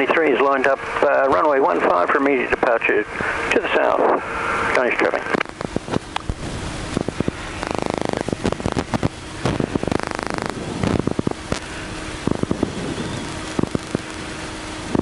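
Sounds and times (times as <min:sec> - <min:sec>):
crackling radio static: 0:00.0 - 0:15.0
rapid buzzing bursts: 0:05.3 - 0:15.0.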